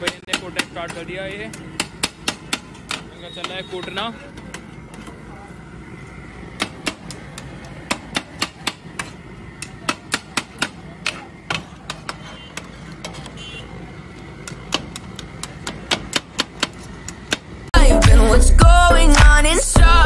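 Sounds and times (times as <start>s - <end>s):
metal cleaver chopping on steel: 0.0s - 4.7s, 6.5s - 12.2s.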